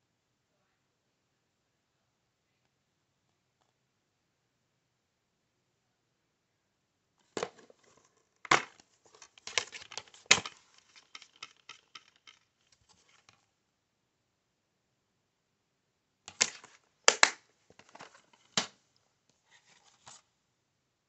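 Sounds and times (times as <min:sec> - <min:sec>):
plastic case clicks and snaps: 0:08.5 - 0:12.4, 0:16.3 - 0:18.8.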